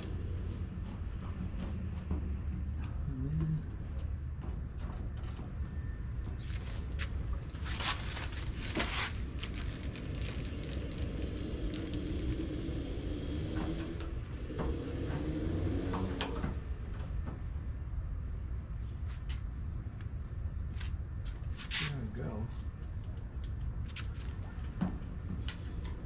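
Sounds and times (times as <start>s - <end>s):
low rumble: 0.0s - 19.0s
plastic rustling: 6.4s - 12.7s.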